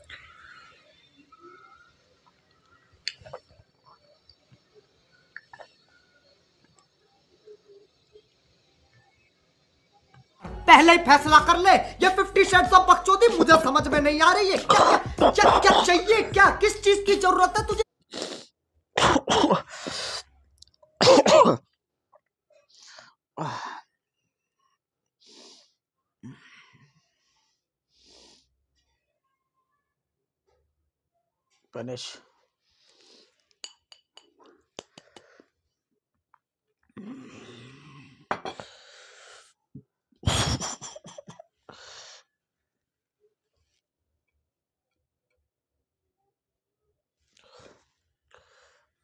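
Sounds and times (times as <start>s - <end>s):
man's explosive vocal outbursts: 11.6s - 17.8s.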